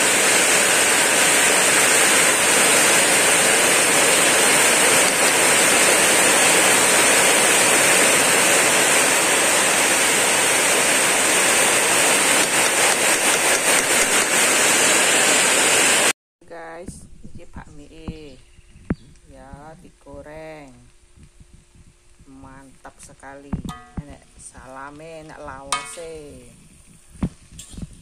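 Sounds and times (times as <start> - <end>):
chicken sizzling in hot oil: 0.0 - 16.1, 23.6 - 28.0.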